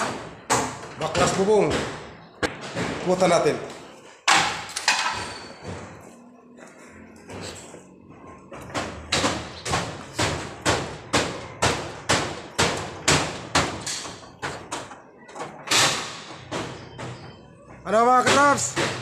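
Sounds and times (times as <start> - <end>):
hammering on metal roofing: 0.0 - 3.4, 8.5 - 19.0.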